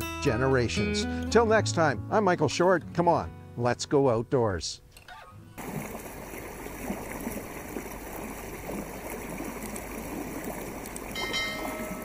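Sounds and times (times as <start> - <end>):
water rushing past canoe: 5.6 - 12.0
water trickling splashes: 5.6 - 12.0.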